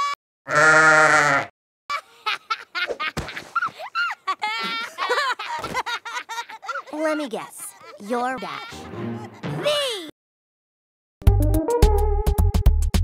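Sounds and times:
chopped laughing voice: 1.9s - 9.8s.

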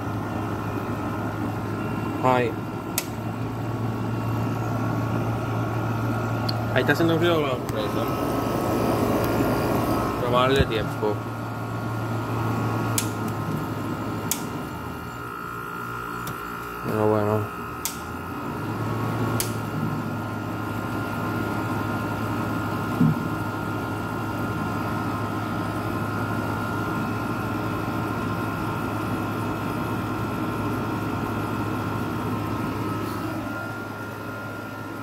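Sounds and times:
window air conditioner running: 0.0s - 35.0s
click: 3.0s - 3.2s, 14.3s - 14.5s, 17.8s - 18.0s.

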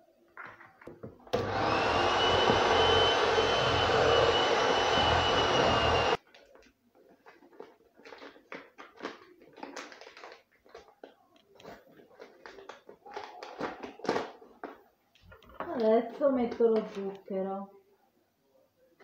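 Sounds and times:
electric hand mixer beating eggs: 1.3s - 6.2s
paper packet rustling: 6.2s - 14.8s.

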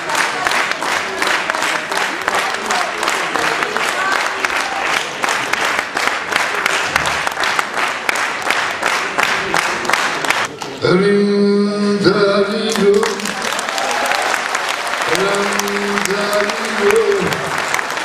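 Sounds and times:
audience applauding: 0.0s - 10.8s, 12.7s - 18.0s
man singing over a microphone: 10.8s - 13.2s.

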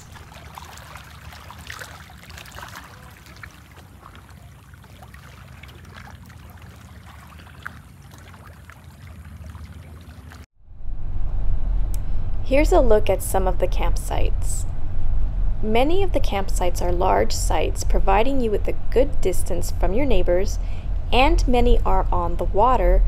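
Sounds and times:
waves lapping on rocky shore: 0.0s - 10.5s
low rumble: 10.6s - 23.0s.

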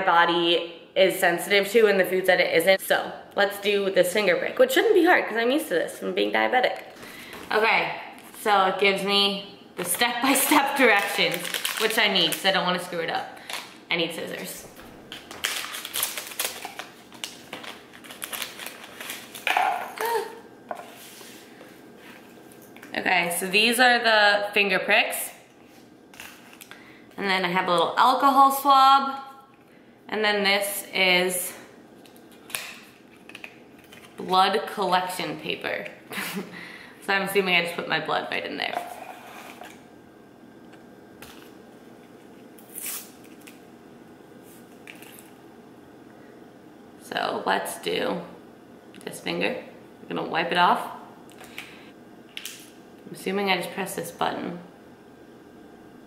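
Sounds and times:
packet crinkling: 10.8s - 12.6s, 15.1s - 19.5s.

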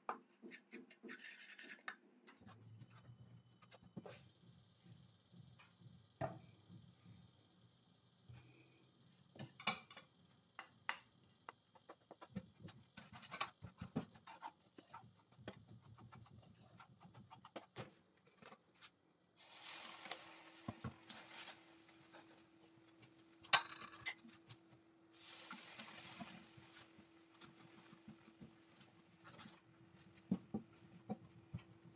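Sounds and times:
wooden spatula scraping a pan: 0.5s - 1.9s, 19.4s - 22.4s.

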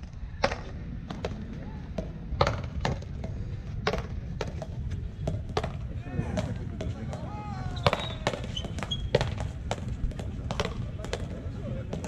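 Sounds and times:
ball smacking off concrete wall: 0.4s - 4.7s
paddles striking rubber ball: 0.4s - 12.0s.

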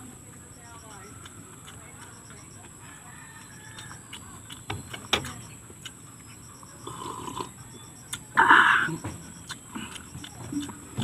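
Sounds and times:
crisp chewing clicks: 1.0s - 6.0s, 9.3s - 11.0s
slurping coffee: 6.8s - 7.5s.

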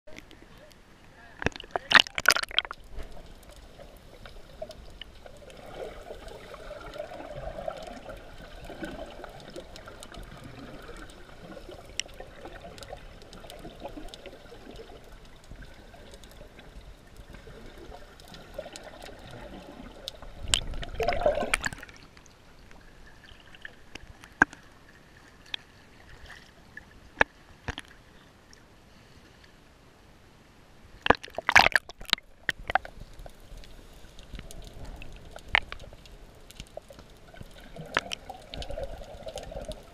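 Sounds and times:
water rushing: 1.3s - 24.1s, 31.0s - 33.0s
sharp underwater clicks: 1.4s - 22.3s, 31.0s - 39.9s
water splashing: 1.4s - 26.7s, 31.0s - 39.9s.

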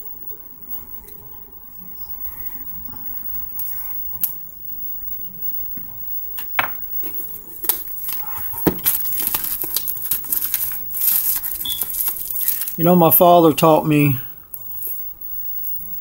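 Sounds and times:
plastic wrap crinkling: 6.4s - 14.2s.

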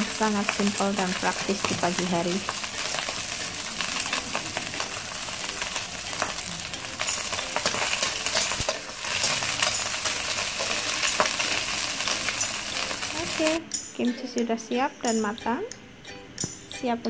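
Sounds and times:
rice sizzling in a wok: 0.0s - 13.6s.

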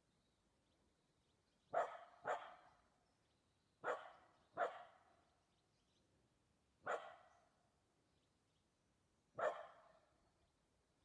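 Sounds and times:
dog barking: 1.7s - 2.7s, 3.8s - 5.0s, 6.8s - 7.3s, 9.4s - 10.0s.

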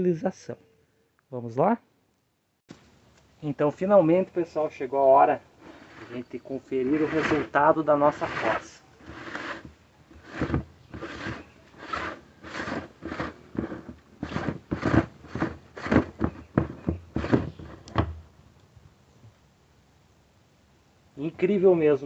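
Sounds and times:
plastic lid scraping as twisted off: 5.6s - 18.1s.

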